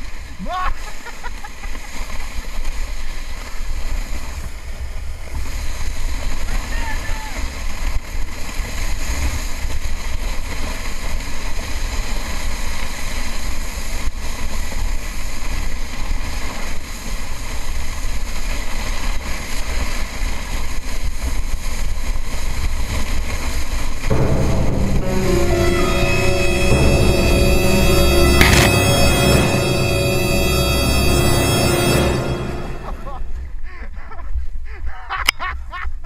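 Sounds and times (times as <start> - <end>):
music: 24.1 - 33.4.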